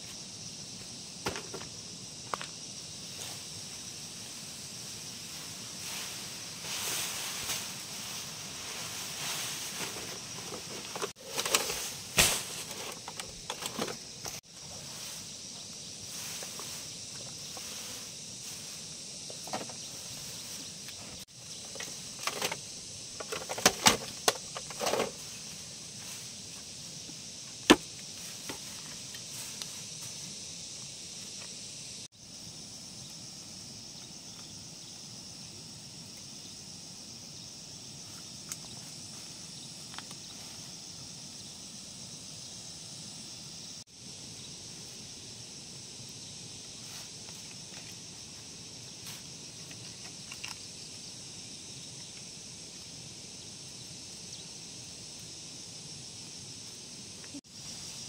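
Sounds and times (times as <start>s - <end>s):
insects hissing: 0.0s - 58.0s
dry grass rustling and crackling: 2.3s - 23.5s.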